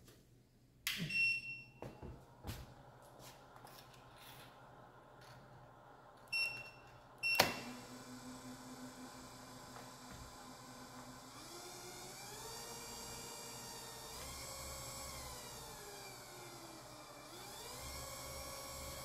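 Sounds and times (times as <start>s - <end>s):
electric motor whirring hum: 7.6s - 19.0s.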